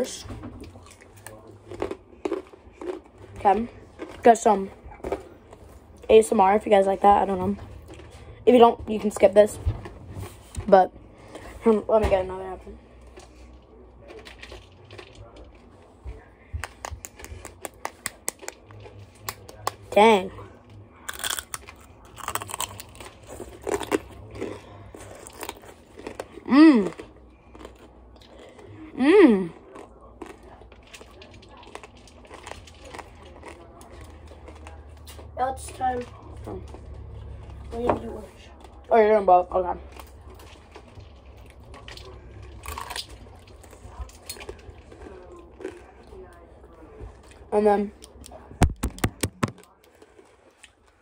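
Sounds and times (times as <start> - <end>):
crunchy bites and chewing: 0.6 - 4.2, 21.0 - 28.7, 29.5 - 35.3, 41.7 - 46.2.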